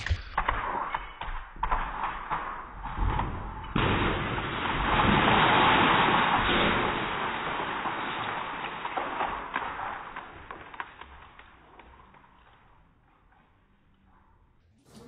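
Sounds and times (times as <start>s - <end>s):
glass door crashing: 0.0s - 10.2s
glass showering onto floor: 0.6s - 12.3s.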